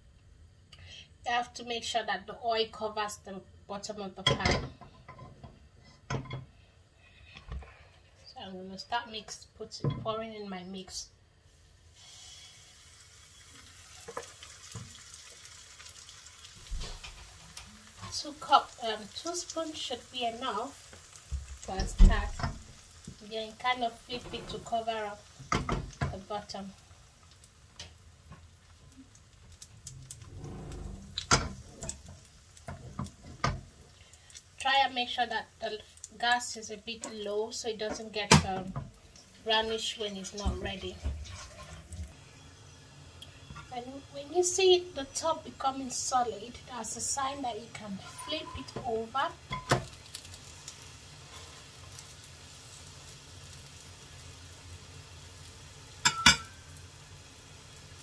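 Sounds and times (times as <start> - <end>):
batter sizzling in oil: 10.6 - 58.0
frying pan knocking on metal: 56.0 - 56.6.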